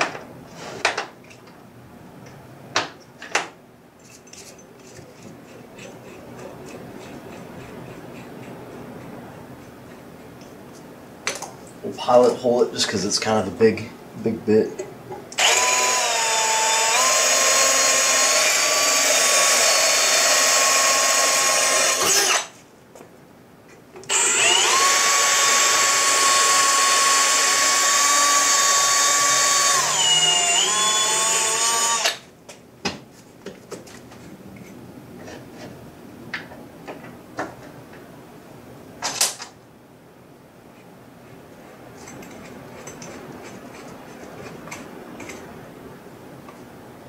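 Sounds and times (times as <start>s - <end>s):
cordless drill whining: 15.4s - 22.6s, 24.1s - 32.2s.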